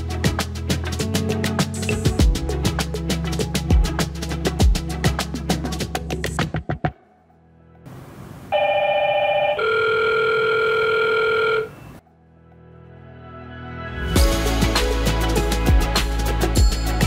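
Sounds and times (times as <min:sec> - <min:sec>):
background music with drums: 0:00.0 - 0:07.0, 0:14.2 - 0:17.0.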